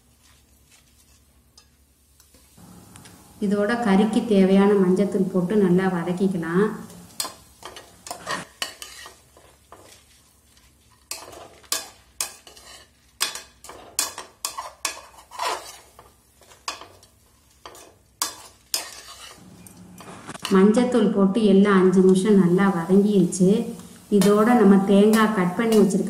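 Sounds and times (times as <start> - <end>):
faint sizzle: 0.0 - 26.0
steel spatula scraping a pan: 0.2 - 2.5, 6.8 - 20.7, 23.8 - 26.0.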